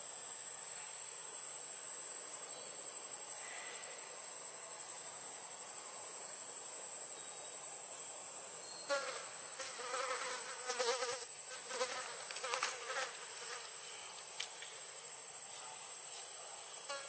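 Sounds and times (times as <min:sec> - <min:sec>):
steady high hiss: 0:00.0 - 0:17.0
flying insect buzzing: 0:08.9 - 0:14.0, 0:16.8 - 0:17.0.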